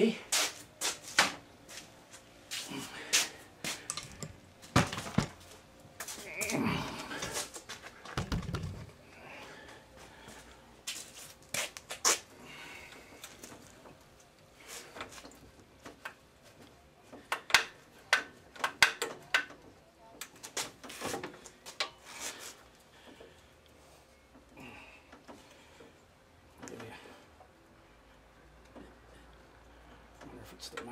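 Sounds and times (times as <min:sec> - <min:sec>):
metal clicks and taps: 0:03.9 - 0:04.4.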